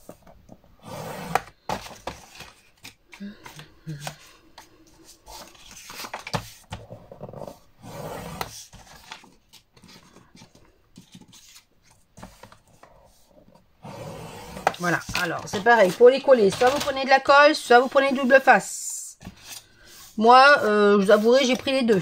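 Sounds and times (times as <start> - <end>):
card rustling: 1.3 - 6.8, 8.4 - 13.3, 14.5 - 18.4, 19.2 - 22.0.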